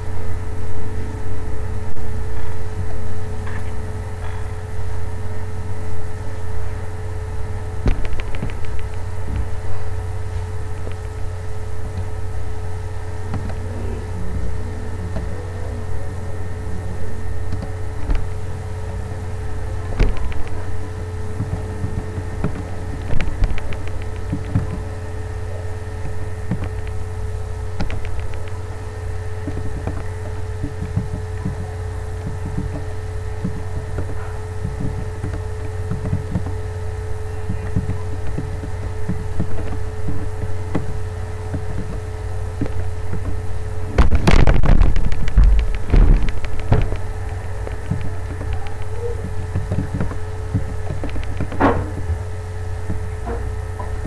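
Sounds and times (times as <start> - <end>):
faint steady whine: 0.0 - 54.0
low electrical hum: 0.0 - 54.0
rough rumbling noise: 0.0 - 54.0
keyboard keys clicking: 7.8 - 9.6, 13.3 - 25.0, 26.0 - 28.7, 42.6 - 52.1.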